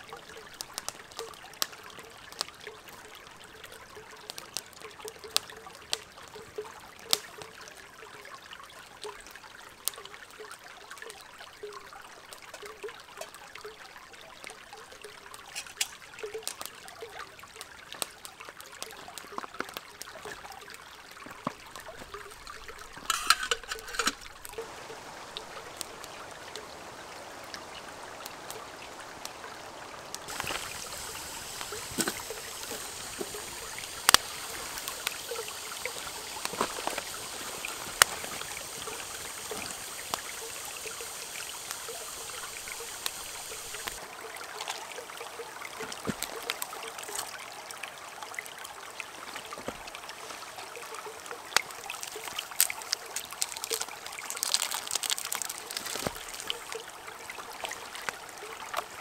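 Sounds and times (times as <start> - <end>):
campfire crackling and popping: 0.0 - 8.4, 14.4 - 59.0
creek trickling over stones: 0.0 - 59.0.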